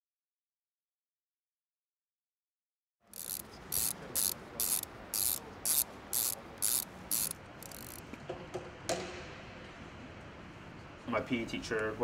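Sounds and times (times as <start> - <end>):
shoe strap ratchet rasping: 3.1 - 8.0.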